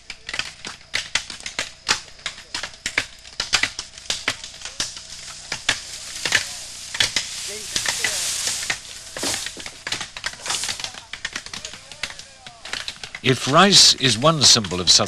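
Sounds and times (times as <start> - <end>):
leaves rustling: 3.2 - 14.6
bamboo chopping knocks: 5.5 - 11.4.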